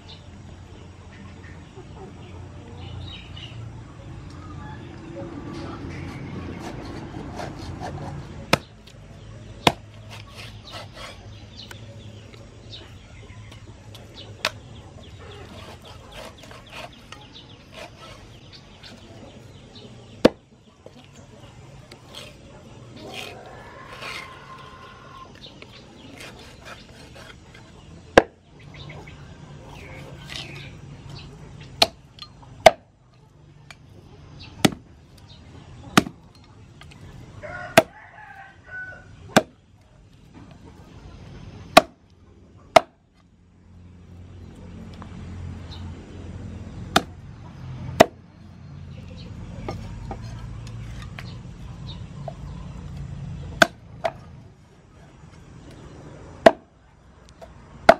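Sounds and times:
cleaver chopping on wooden board: 6.6s - 8.7s, 9.6s - 11.2s, 20.2s - 20.4s, 28.2s - 28.4s, 31.8s - 32.0s, 32.6s - 32.9s, 34.6s - 34.9s, 35.9s - 36.2s, 37.7s - 37.9s, 41.7s - 42.0s, 42.7s - 43.0s, 46.9s - 47.2s, 48.0s - 48.2s, 53.6s - 54.2s, 56.4s - 56.7s.

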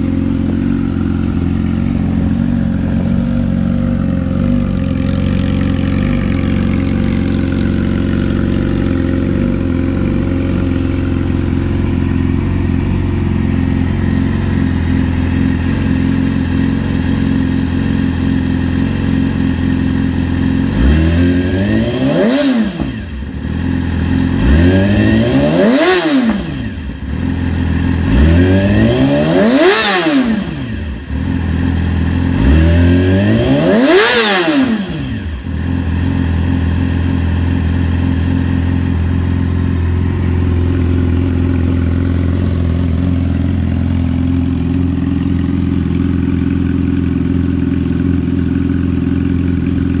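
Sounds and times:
motorcycle engine idling: 0.0s - 50.0s
motorcycle engine revving: 0.0s - 50.0s.

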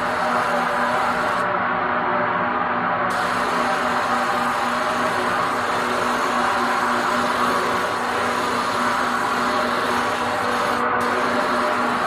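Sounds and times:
spray gun hissing: 0.0s - 1.4s, 3.1s - 12.0s.

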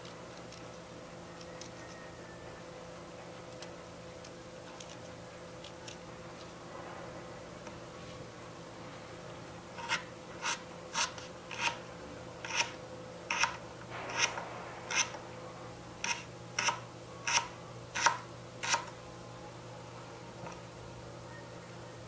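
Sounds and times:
knife chopping carrot on wooden board: 12.4s - 12.7s, 13.3s - 15.2s.

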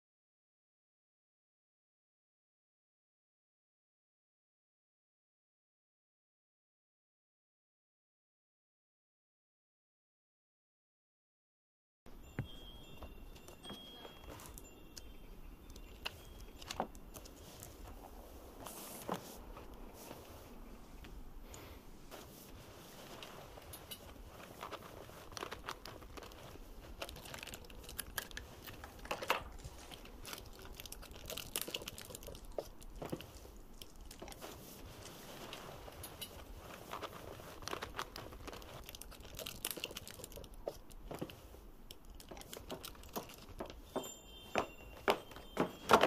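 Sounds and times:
crinkling and crackling: 12.4s - 46.0s
hands handling small objects: 13.3s - 20.4s, 21.5s - 46.0s.

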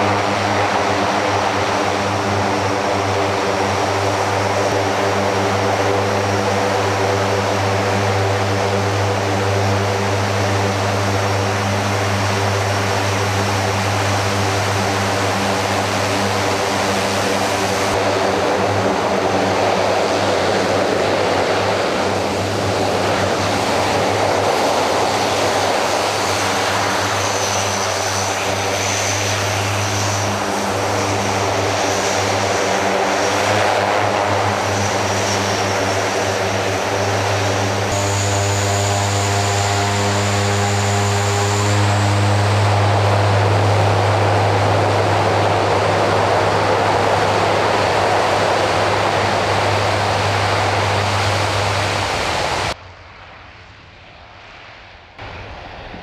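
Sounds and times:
propeller drone: 0.0s - 56.0s.

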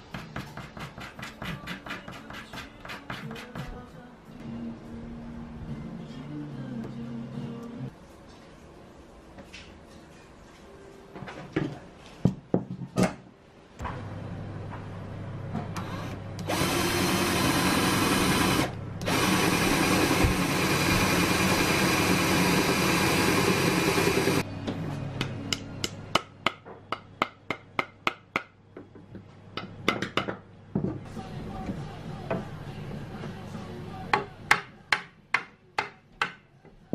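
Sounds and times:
cordless drill boring into wood: 15.8s - 24.4s
mallet tapping wooden dowel: 25.2s - 28.6s, 34.2s - 36.4s.

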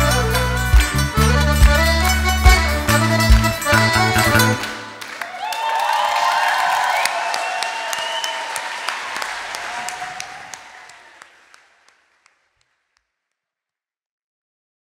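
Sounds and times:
audience applauding and cheering: 3.3s - 12.4s
gliding whoops: 5.2s - 11.2s.

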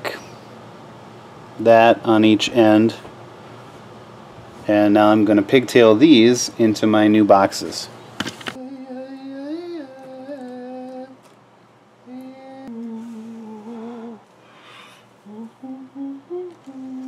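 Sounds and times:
man humming: 8.6s - 11.3s, 12.0s - 17.0s.

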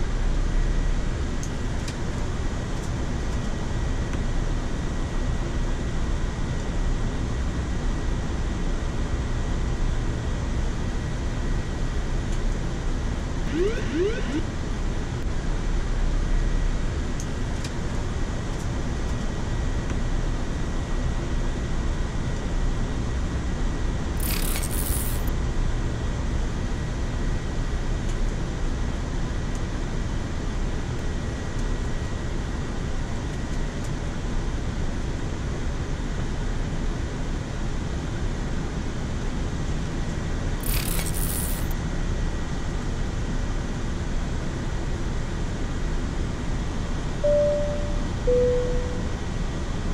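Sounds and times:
airflow and engine noise in cockpit: 0.0s - 49.9s
faint steady high tone: 13.5s - 14.5s, 47.2s - 49.3s.

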